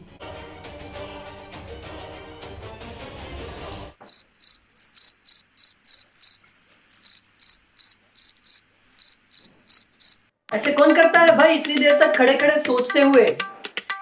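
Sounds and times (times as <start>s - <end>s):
background music: 0.0s - 3.9s, 10.5s - 14.0s
crickets chirping: 3.7s - 10.3s.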